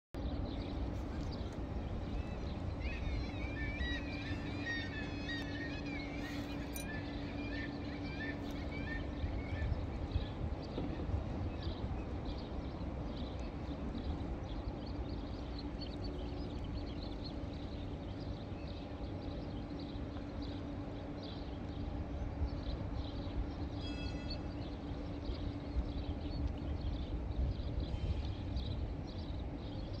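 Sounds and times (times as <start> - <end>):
low hum and rumble: 0.2 - 30.0
gulls calling: 1.0 - 10.3.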